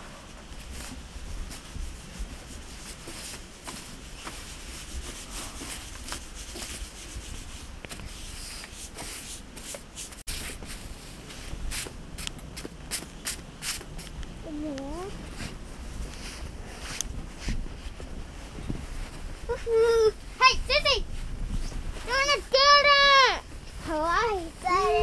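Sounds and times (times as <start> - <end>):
steady low rumble: 10.6 - 25.0
snow crunching and scraping: 12.5 - 25.0.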